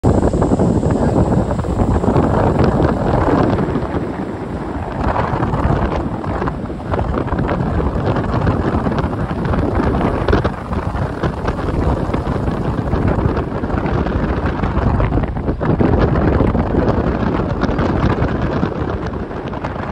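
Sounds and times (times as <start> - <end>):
road and tyre noise: 0.0 - 19.9
wind buffeting microphone: 0.0 - 19.9.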